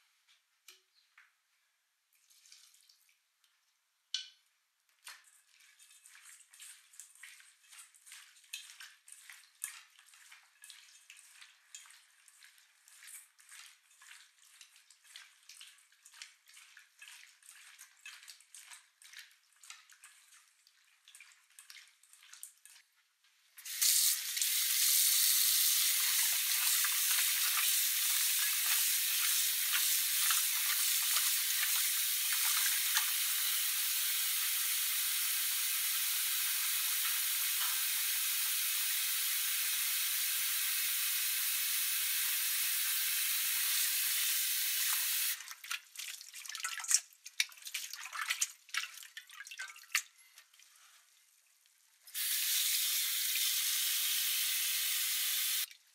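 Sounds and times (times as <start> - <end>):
water dripping and splashing: 2.1 - 40.6, 41.5 - 53.6
tap water running into steel bowl: 5.0 - 22.8, 23.6 - 50.1.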